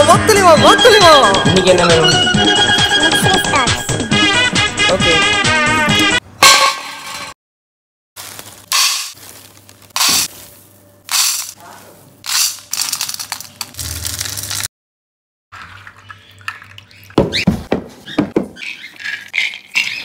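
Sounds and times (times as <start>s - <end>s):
dry grains rattling in steel bowl: 11.1s - 11.6s, 12.3s - 14.7s.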